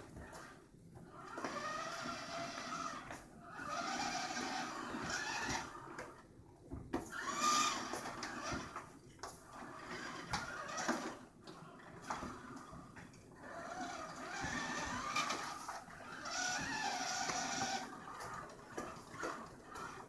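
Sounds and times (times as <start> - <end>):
robot motors whining: 1.1 - 5.9, 13.5 - 20.0.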